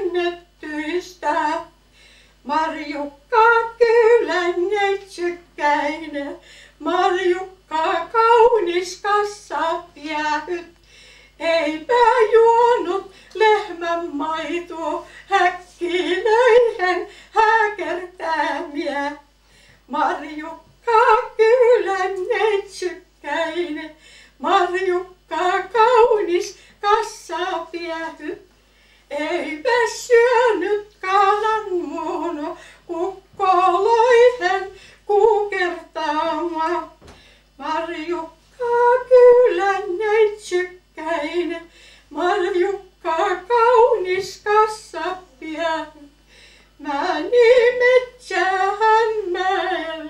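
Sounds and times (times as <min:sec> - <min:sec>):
woman singing unaccompanied: 0:00.0 - 0:01.8, 0:02.4 - 0:28.5, 0:29.1 - 0:46.2, 0:46.8 - 0:50.0
woman singing solo: 0:11.4 - 0:19.2.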